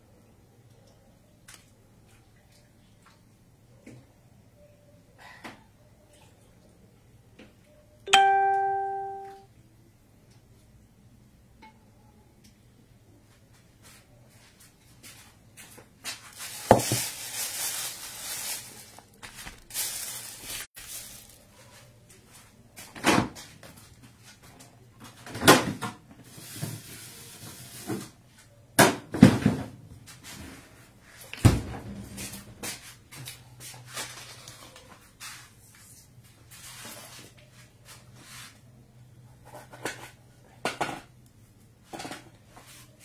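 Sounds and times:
rustling: 13.8s - 22.4s.

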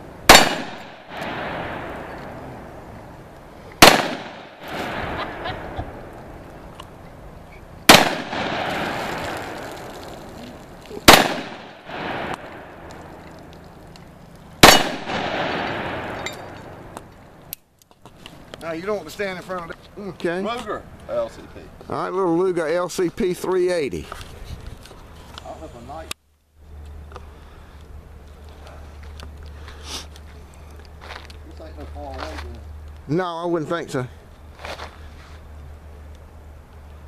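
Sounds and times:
steel target ringing clang: 0.3s - 2.2s, 14.6s - 16.8s
handgun shots: 0.3s - 2.4s, 3.8s - 5.2s, 7.9s - 9.6s, 11.0s - 12.8s, 14.6s - 17.0s.

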